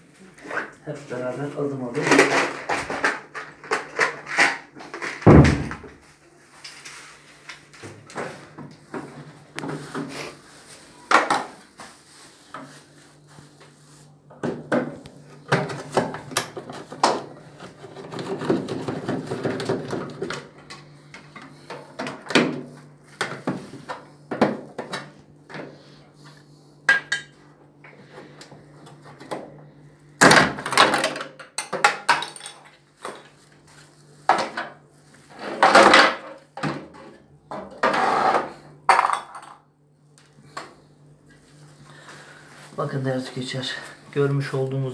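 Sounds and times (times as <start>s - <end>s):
plastic and metal clattering: 1.9s - 6.0s, 14.5s - 20.5s.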